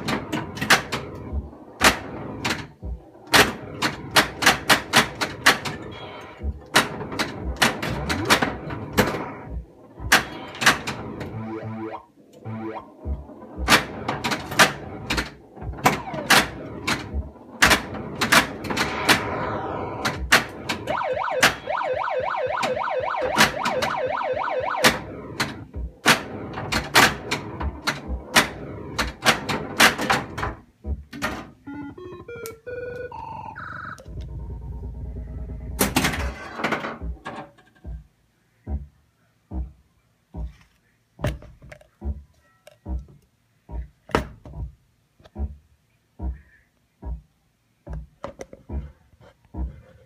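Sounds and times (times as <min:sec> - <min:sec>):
pinball flippers and ball clacking: 0:00.0 - 0:05.9, 0:06.5 - 0:21.7, 0:22.5 - 0:32.3, 0:35.7 - 0:38.0
electronic sound effects: 0:11.3 - 0:13.7
low hum: 0:33.1 - 0:35.9.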